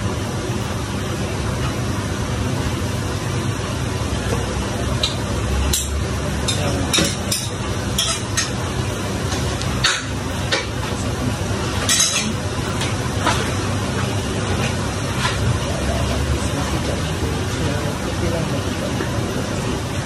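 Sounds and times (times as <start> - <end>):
food frying in a wok: 0.0 - 20.0.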